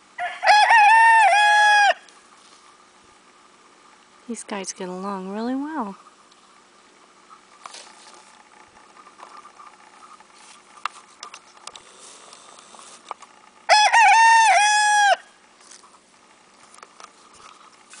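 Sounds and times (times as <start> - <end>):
rooster crowing: 0.2 - 2.1, 13.7 - 15.4.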